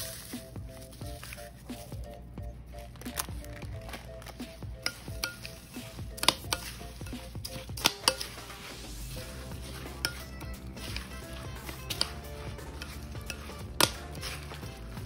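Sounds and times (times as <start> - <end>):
fork scraping glass bowl: 4.8 - 15.0.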